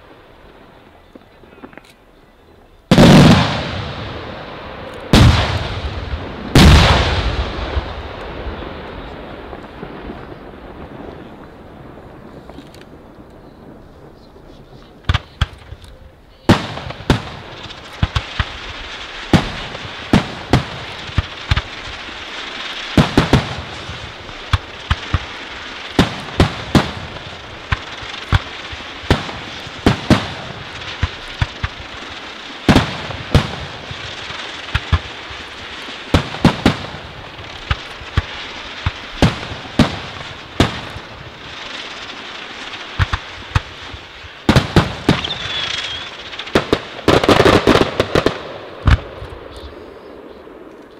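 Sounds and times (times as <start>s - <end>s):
continuous crackling: 0.0s - 50.9s
firework shells bursting: 16.5s - 49.6s.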